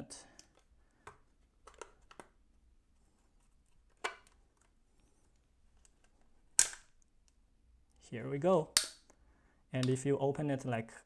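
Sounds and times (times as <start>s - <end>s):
plastic latches snapping: 6.6s - 6.9s.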